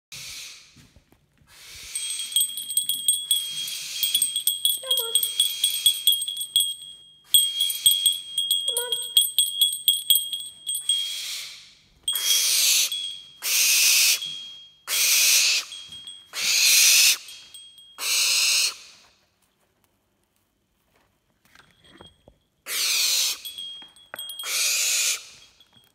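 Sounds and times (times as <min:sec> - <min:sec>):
owl hissing screeches: 0:00.1 - 0:00.7, 0:01.5 - 0:02.1, 0:11.0 - 0:14.2, 0:16.4 - 0:17.3, 0:18.0 - 0:19.0, 0:22.7 - 0:23.4, 0:24.5 - 0:25.3
light jingling: 0:01.9 - 0:11.3, 0:12.0 - 0:18.2, 0:21.5 - 0:25.9
high-pitched ringing: 0:01.9 - 0:11.5, 0:12.1 - 0:18.4, 0:23.2 - 0:25.9.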